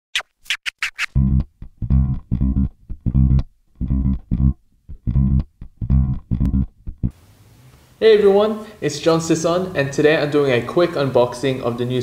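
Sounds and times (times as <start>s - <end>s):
plucked string riff: 1.0s - 7.2s
heavy bass: 1.2s - 7.2s.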